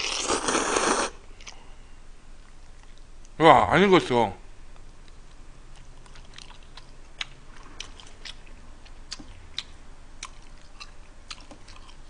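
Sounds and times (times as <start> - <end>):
chewing firm spaghetti: 5.0 - 12.0.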